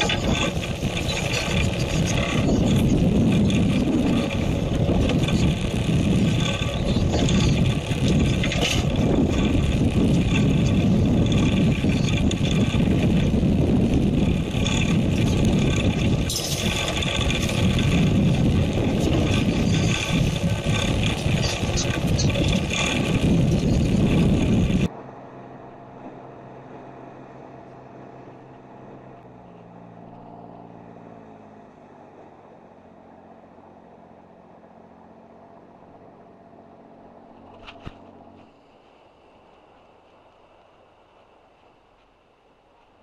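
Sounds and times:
sea washing against hull: 0.0 - 24.9
boat engine rumble: 0.0 - 43.0.

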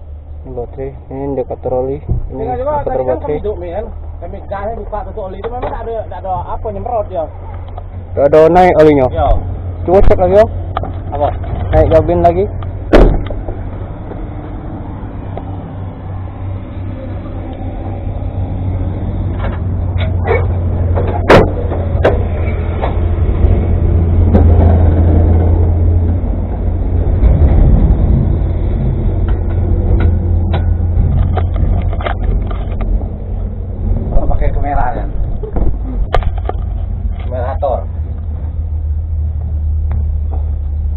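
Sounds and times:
steady low rumble: 0.0 - 40.9
metal clanks and knocks: 10.7 - 14.2, 19.3 - 23.6, 27.2 - 33.1.

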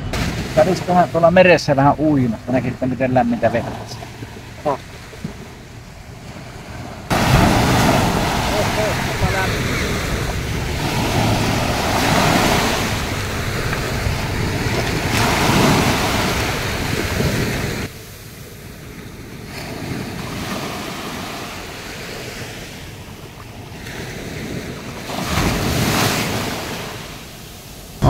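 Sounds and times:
waves breaking on sandy shore: 0.0 - 28.0
wind rumbling on microphone: 0.0 - 28.0.

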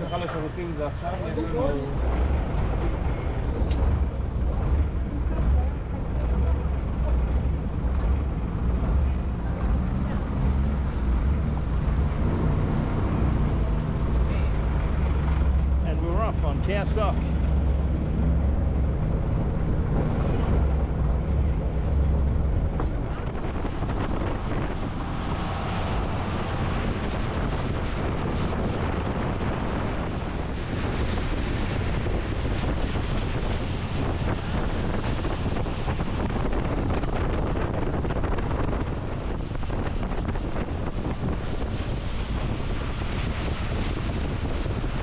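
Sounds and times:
boat engine hum: 0.0 - 45.0
water rushing: 0.0 - 45.0
wind buffeting microphone: 0.0 - 45.0.

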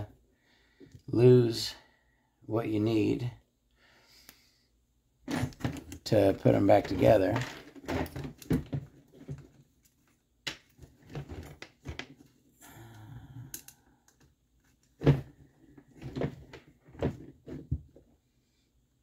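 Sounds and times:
small screws and metal parts clicking: 13.4 - 14.3.

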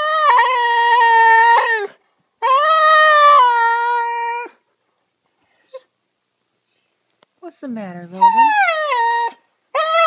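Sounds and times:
dog howl-like calls: 0.0 - 4.5.

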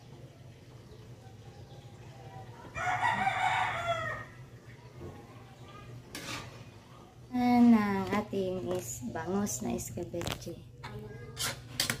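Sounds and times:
rooster crowing: 2.8 - 4.4.

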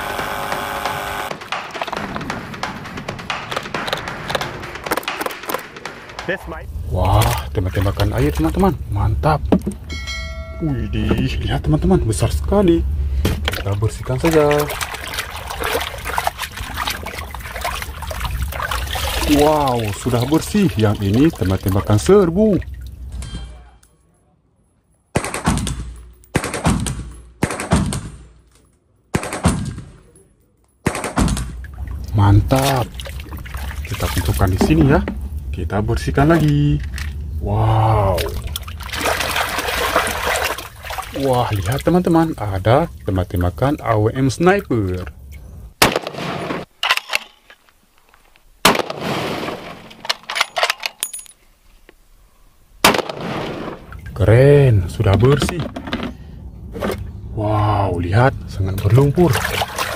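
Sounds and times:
rifle rapid shots with echo: 1.3 - 6.4, 25.2 - 28.3, 29.1 - 30.0, 45.8 - 46.7, 48.7 - 49.9, 52.8 - 53.8.

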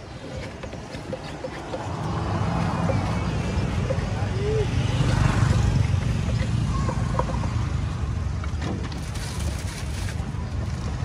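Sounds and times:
knife scraping coconut shell: 0.0 - 7.5.

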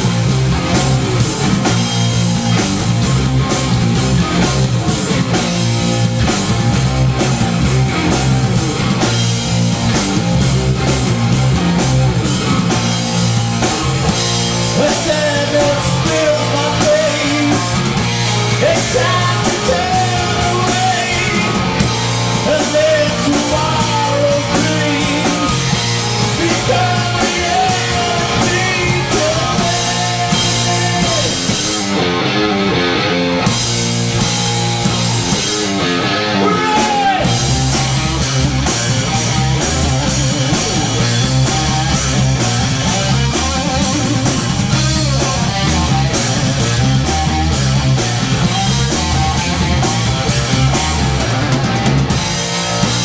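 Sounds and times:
drum kit: 0.0 - 53.0
electric guitar: 0.0 - 53.0
man singing: 14.7 - 17.9, 18.5 - 21.8, 22.4 - 31.6, 36.3 - 37.4.

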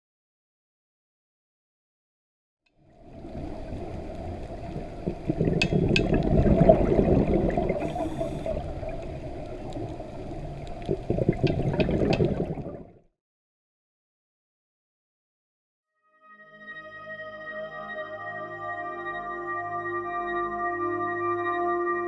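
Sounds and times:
moving water: 2.8 - 13.0.

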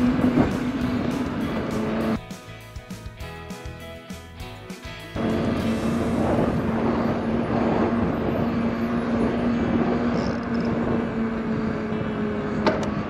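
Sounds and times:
wind rumbling on microphone: 0.0 - 2.2, 5.2 - 13.0.

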